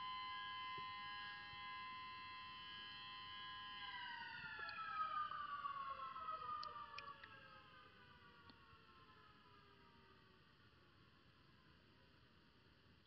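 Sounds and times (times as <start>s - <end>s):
faint siren-like whine: 0.0s - 13.0s.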